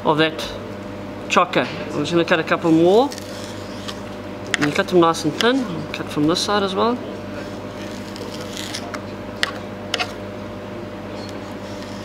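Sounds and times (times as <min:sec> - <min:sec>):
steady hum: 0:00.0 - 0:12.0
knife slicing on cutting board: 0:07.9 - 0:10.2.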